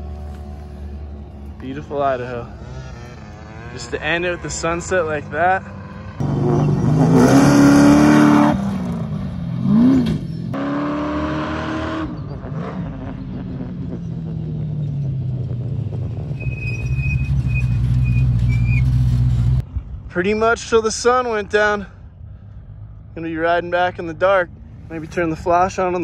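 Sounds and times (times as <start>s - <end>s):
dune buggy engine revving: 0.0s - 19.6s.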